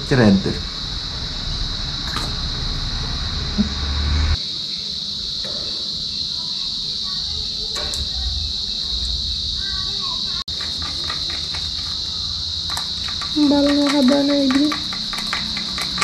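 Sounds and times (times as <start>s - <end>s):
low rumble: 0.0s - 4.4s, 7.8s - 10.5s
high-pitched insect chorus: 0.0s - 16.0s.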